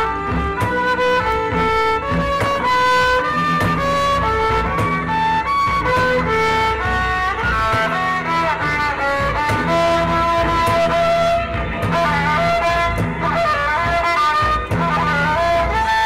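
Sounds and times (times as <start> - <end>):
instrumental melody of held notes: 0.0 - 16.0
steady bass line: 0.0 - 16.0.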